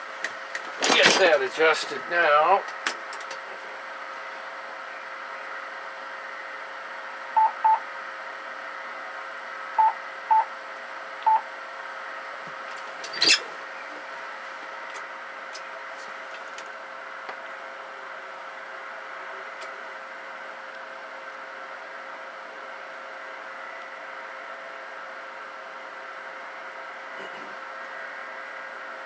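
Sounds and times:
cooling blower hiss and hum: 0.0 - 29.0
short electronic beeps: 7.4 - 7.8.

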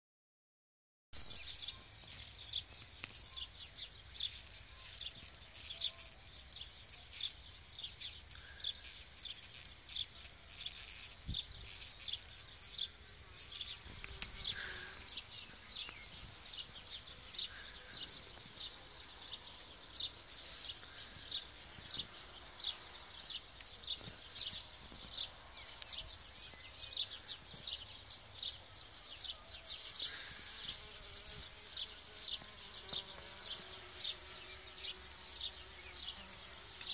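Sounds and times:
bees buzzing: 1.9 - 36.9.

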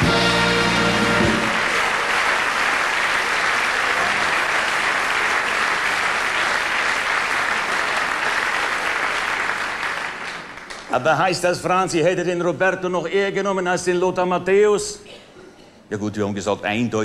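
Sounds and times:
audience applause: 0.0 - 11.0.

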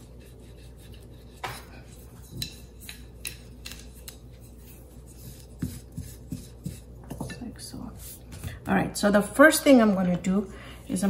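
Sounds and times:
rolling pin rubbing over dough: 0.0 - 8.6.

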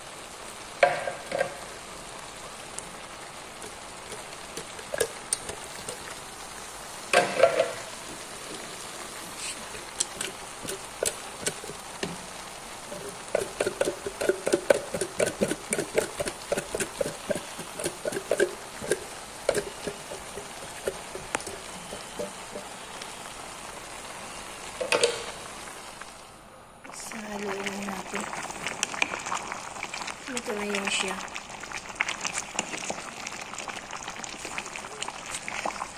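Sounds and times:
food sizzling in a pot: 0.0 - 26.2, 26.9 - 35.9
can emptying with glugs: 13.0 - 22.7.

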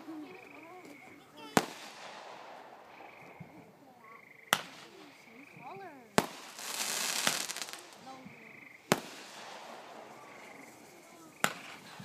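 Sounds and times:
firework crackling: 1.4 - 3.5, 4.4 - 12.0
firework shells bursting: 6.1 - 8.2, 8.8 - 11.9.

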